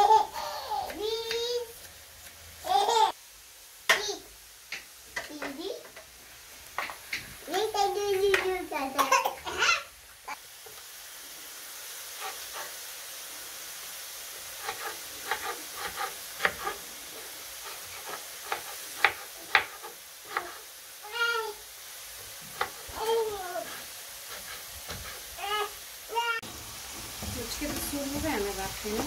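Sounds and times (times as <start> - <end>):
potatoes sizzling in oil: 0.0 - 29.0
knife chopping on wooden board: 14.6 - 16.8, 17.8 - 20.5, 24.3 - 25.2.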